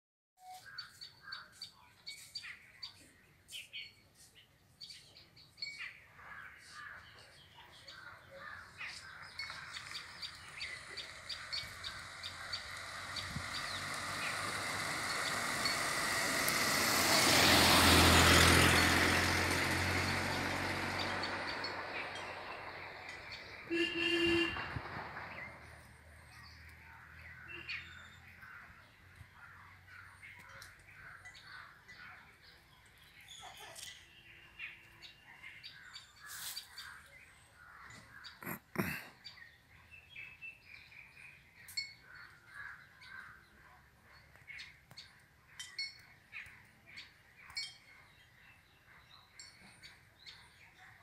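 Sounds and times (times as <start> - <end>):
small birds chirping: 0.4 - 16.7, 25.2 - 51.0
vehicle passing: 9.3 - 29.1.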